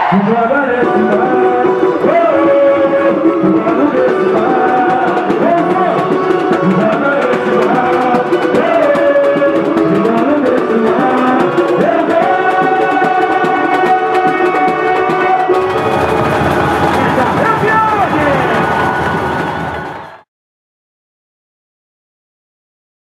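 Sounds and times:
percussion drumming: 0.0 - 20.2
voices singing samba melody: 0.0 - 20.2.

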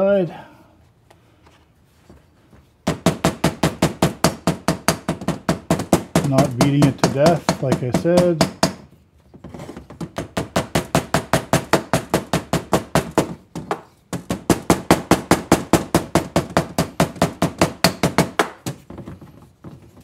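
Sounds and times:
hammer tapping gasket: 2.8 - 8.9.

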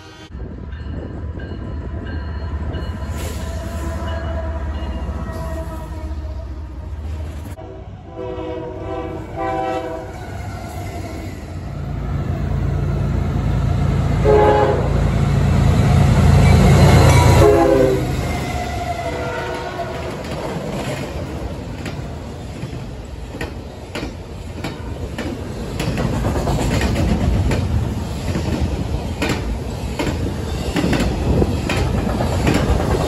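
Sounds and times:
locomotive horn blasts: 7.6 - 10.2, 14.2 - 15.0, 16.9 - 18.3, 18.9 - 20.0
train cars rolling: 8.2 - 33.0.

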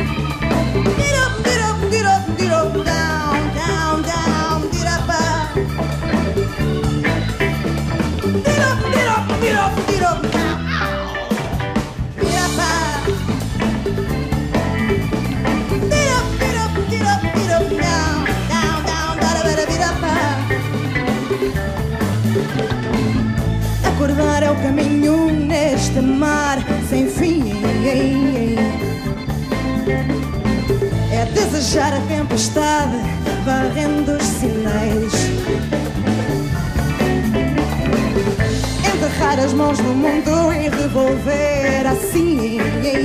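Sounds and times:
woman singing: 0.0 - 7.6, 8.3 - 11.0, 12.2 - 13.8, 15.8 - 21.2, 23.8 - 29.7, 31.0 - 35.9, 38.6 - 43.0
live rock band playing: 0.0 - 43.0.

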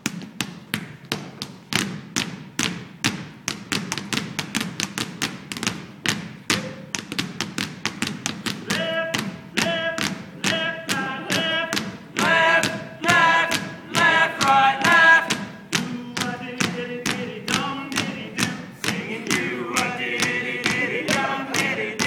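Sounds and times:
basketballs bouncing on stage floor: 0.0 - 22.0.

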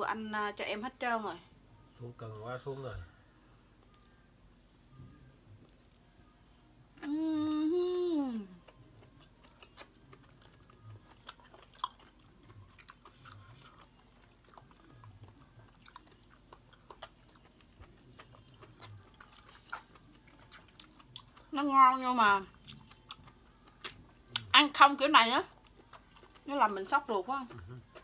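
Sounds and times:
quiet chewing: 8.5 - 21.5, 22.4 - 24.5, 25.5 - 28.0.

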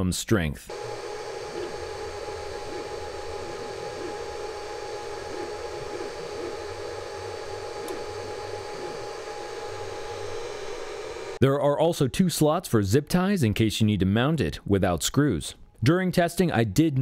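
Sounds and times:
cooling fans whirring: 0.7 - 11.4.

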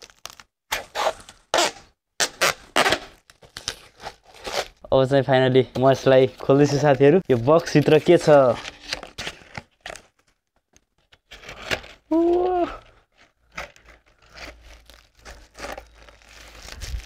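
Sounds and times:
plastic wrapping crinkling: 0.0 - 1.7, 12.0 - 17.0
person humming: 12.1 - 12.8.

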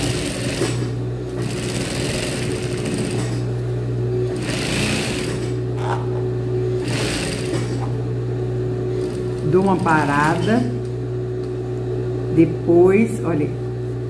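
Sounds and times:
sewing machine sewing: 0.0 - 3.4, 4.3 - 5.6, 6.8 - 7.9, 9.0 - 10.7.

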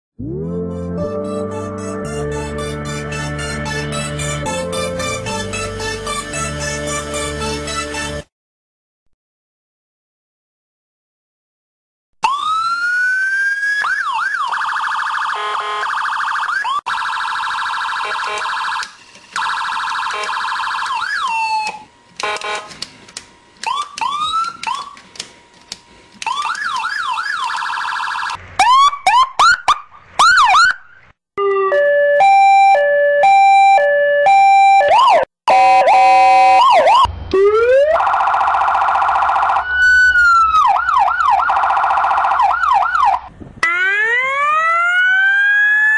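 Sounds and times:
two-tone siren: 0.2 - 1.0, 12.2 - 22.7, 23.6 - 25.0, 26.2 - 45.9
police car siren wailing and yelping: 12.2 - 21.9, 23.6 - 25.0, 26.2 - 45.9.

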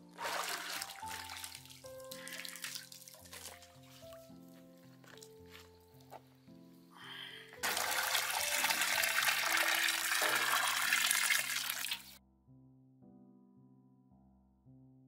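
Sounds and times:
water pouring from metal bucket: 0.0 - 4.2, 7.6 - 12.2
soft background music: 0.0 - 15.0.

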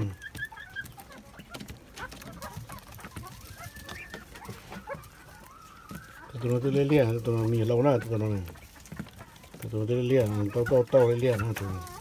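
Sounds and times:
chicks peeping and chirping: 0.0 - 12.0
pecking on concrete floor: 0.0 - 12.0.

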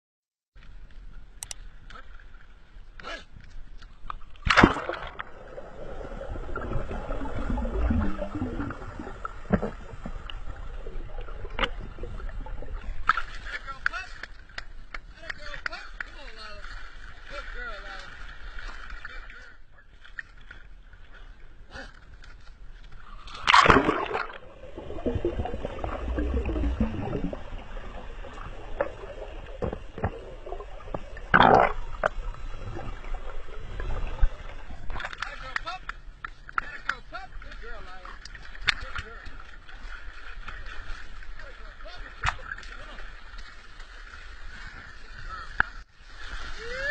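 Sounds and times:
faint clicks: 0.6 - 2.0
muffled underwater bubbling: 4.7 - 13.0, 23.5 - 35.1.

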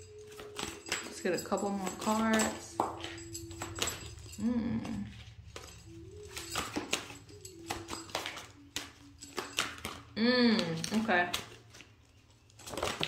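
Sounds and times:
cards shuffling: 4.8 - 13.0.

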